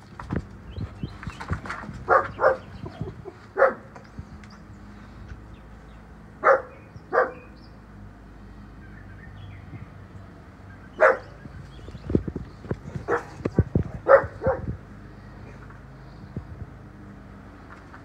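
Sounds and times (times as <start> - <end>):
dog barking: 2.1 - 2.7, 3.6 - 3.9, 6.4 - 7.5, 11.0 - 11.4, 13.0 - 14.8.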